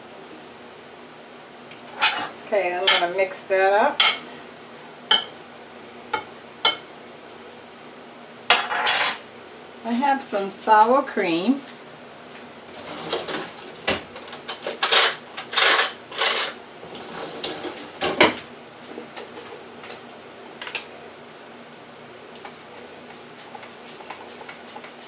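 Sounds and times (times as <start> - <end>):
utensils and containers clattering: 1.9 - 3.1, 12.8 - 18.4.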